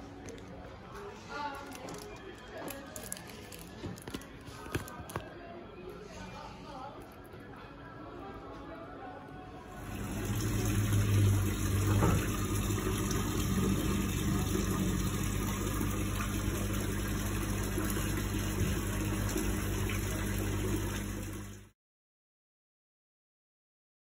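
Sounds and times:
fountain water pouring and splashing: 9.8s - 21.7s.

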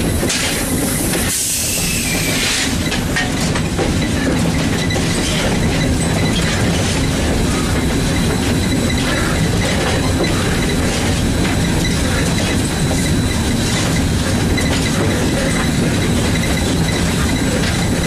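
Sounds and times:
steam locomotive running: 0.0s - 18.0s
train wheels on rails: 0.0s - 18.0s.

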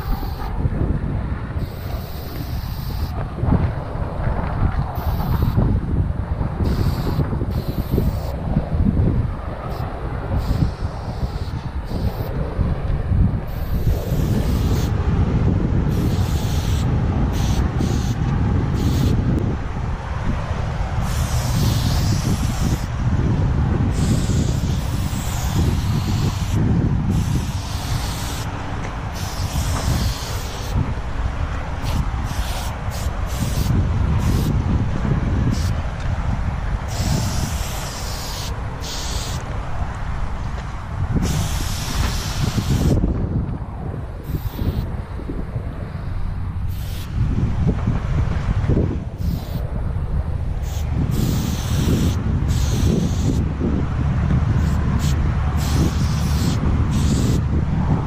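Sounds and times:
spray paint cans hissing: 0.0s - 0.5s, 1.6s - 3.2s, 5.0s - 5.6s, 6.6s - 8.4s, 9.7s - 12.3s, 13.5s - 14.9s, 15.9s - 19.2s, 21.0s - 22.9s, 23.9s - 28.5s, 29.1s - 30.8s, 31.8s - 34.6s, 35.5s - 35.8s, 36.9s - 39.5s, 41.2s - 43.0s, 44.2s - 44.8s, 46.7s - 47.1s, 49.2s - 49.6s, 50.6s - 53.4s, 54.6s - 57.4s
wind buffeting on microphone: 0.0s - 58.0s.

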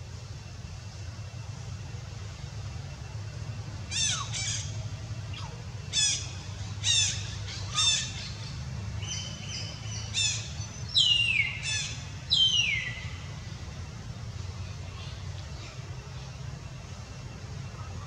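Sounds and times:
steady low rumble: 0.0s - 18.0s
infant monkey high-pitched calls: 3.8s - 13.4s.

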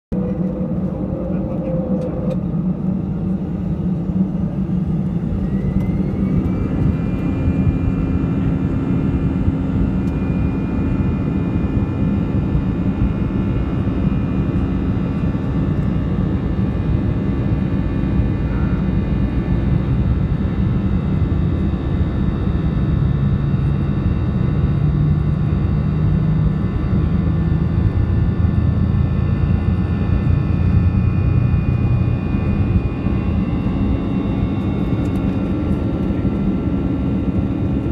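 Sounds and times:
heavy low rumble: 0.1s - 37.9s
jet engine whine: 0.1s - 37.9s.

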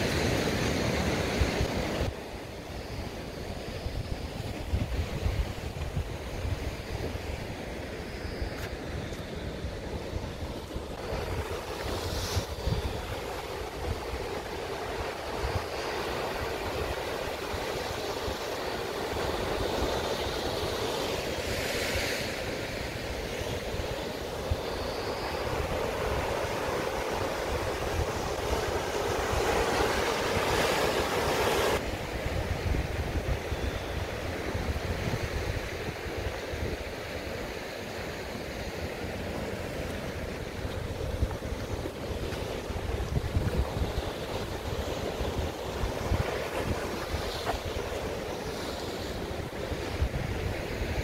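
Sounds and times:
surf washing over rocks: 0.0s - 51.0s
wind buffeting microphone: 3.4s - 21.6s, 39.2s - 51.0s.

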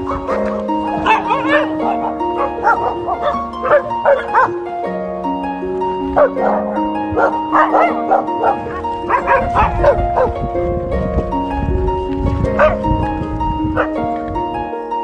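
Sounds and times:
dogs barking and yipping: 0.0s - 5.0s, 5.8s - 10.7s, 11.3s - 15.0s
plucked harp-like music: 0.0s - 15.0s.

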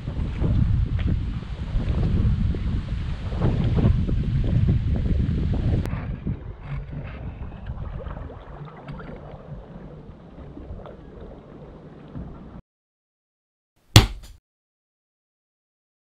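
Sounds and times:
water lapping and dripping: 6.6s - 12.6s
small water splashes: 7.6s - 12.0s.

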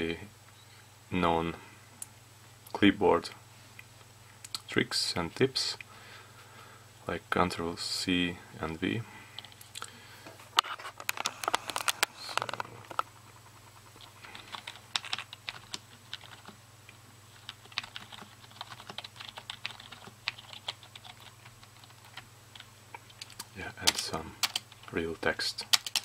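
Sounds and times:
computer keyboard typing: 13.6s - 16.6s, 17.4s - 24.9s, 25.6s - 26.0s.

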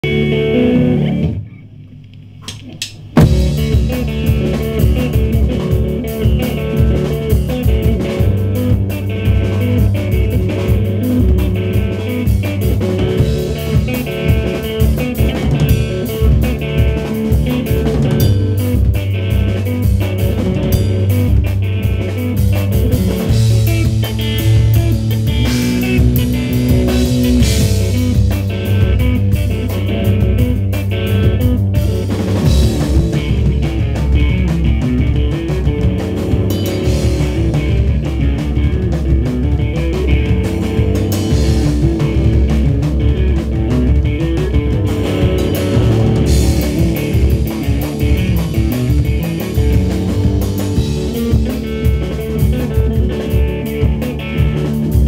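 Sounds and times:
drum kit playing: 0.0s - 1.6s, 2.2s - 55.0s
distorted electric guitar: 0.0s - 55.0s.

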